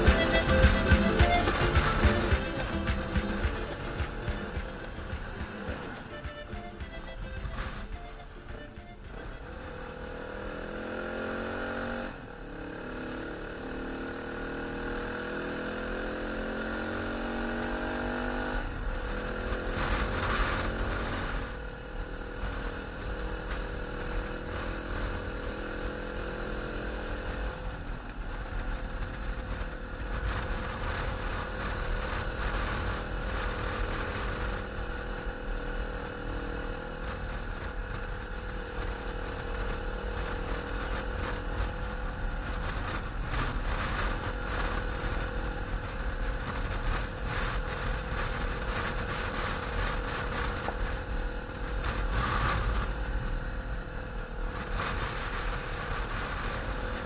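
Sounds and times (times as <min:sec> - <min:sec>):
motorcycle engine accelerating: 0:00.0 - 0:57.0
wind rumble on microphone: 0:18.0 - 0:57.0.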